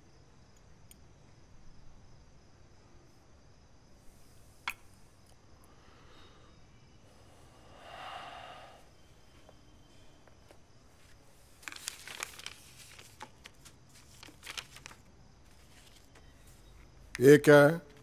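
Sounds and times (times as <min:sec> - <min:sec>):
soft breathy sound: 0:05.4 - 0:10.2
paper crinkling and rustling: 0:11.0 - 0:16.8.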